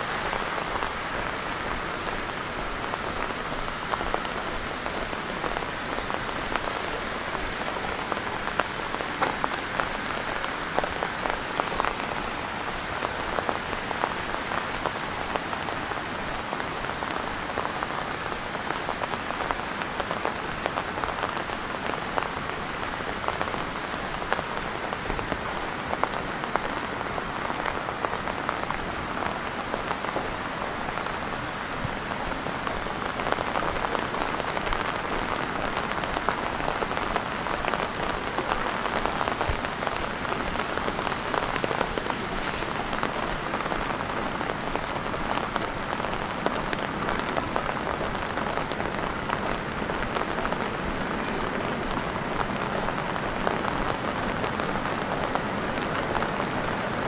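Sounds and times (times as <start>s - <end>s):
rain splashing on hard surfaces: 0.0s - 57.0s.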